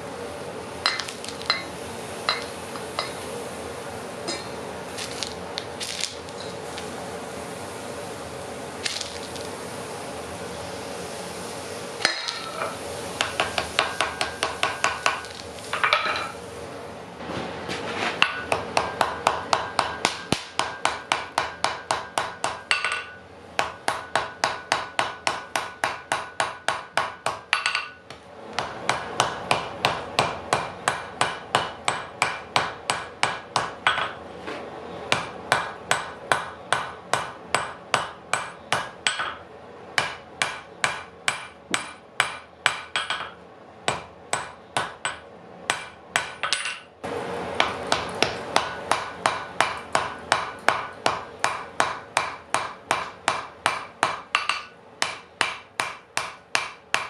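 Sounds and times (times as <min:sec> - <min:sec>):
hammer striking metal on anvil: 0:00.8 - 0:01.7, 0:02.3 - 0:03.2, 0:12.0 - 0:16.3, 0:18.2 - 0:28.0, 0:28.6 - 0:34.2, 0:35.1 - 0:39.4, 0:40.0 - 0:46.9, 0:47.6 - 0:57.0.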